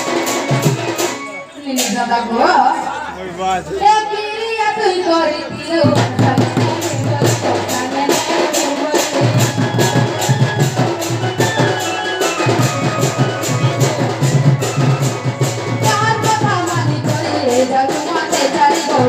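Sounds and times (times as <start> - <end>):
barrel drum beating: 0.0 - 2.3, 5.4 - 19.0
jingling percussion: 0.0 - 2.5, 5.7 - 19.0
held melodic line: 9.2 - 17.4.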